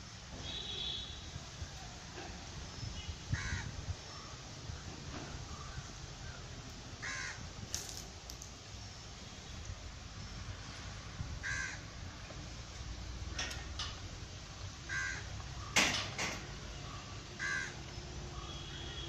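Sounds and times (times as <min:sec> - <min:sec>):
crow cawing: 0:03.4 - 0:03.7, 0:07.0 - 0:07.4, 0:11.4 - 0:11.8, 0:14.9 - 0:15.3, 0:17.4 - 0:17.8.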